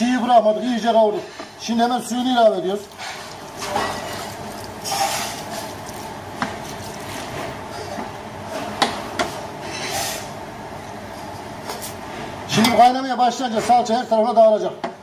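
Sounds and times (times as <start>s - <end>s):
water pouring into pot: 2.0s - 8.2s.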